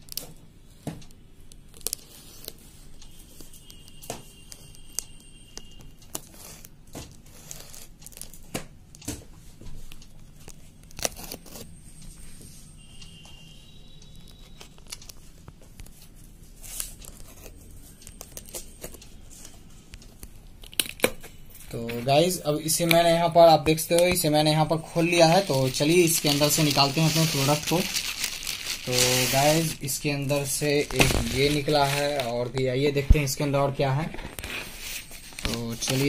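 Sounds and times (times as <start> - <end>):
tape crinkling: 1.7 - 2.7, 7.3 - 8.5, 10.4 - 11.7, 14.3 - 19.6, 24.0 - 36.0.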